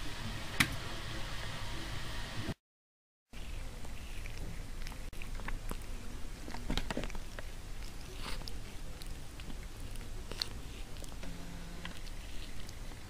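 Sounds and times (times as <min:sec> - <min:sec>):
steady low hum: 0:03.4 - 0:13.0.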